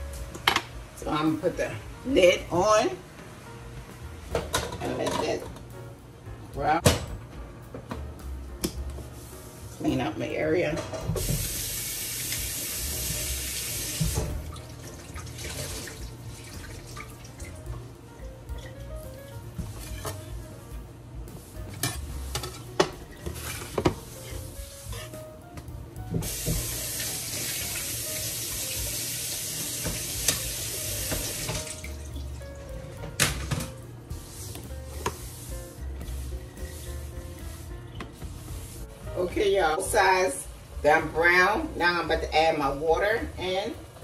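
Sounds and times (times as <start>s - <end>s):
faucet running water into sink: 11.2s - 17.6s, 26.2s - 32.2s.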